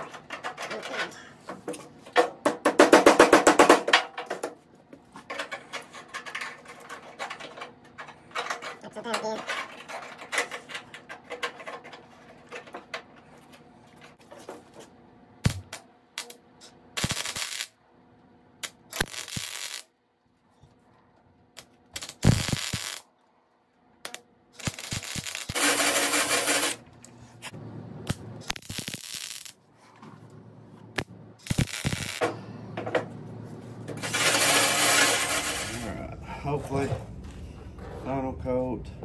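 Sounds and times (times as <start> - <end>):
welding crackling and sizzling: 17.0 - 17.8, 18.6 - 19.9, 21.5 - 23.1, 24.0 - 26.8, 27.4 - 29.7, 30.9 - 32.2, 34.0 - 35.9.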